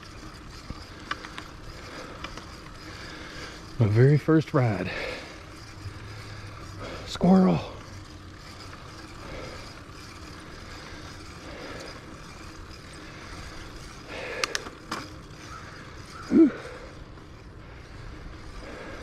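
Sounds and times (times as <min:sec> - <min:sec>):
bicycle tyre and wind noise: 0:00.0 - 0:19.0
sharp clicks: 0:14.3 - 0:15.1.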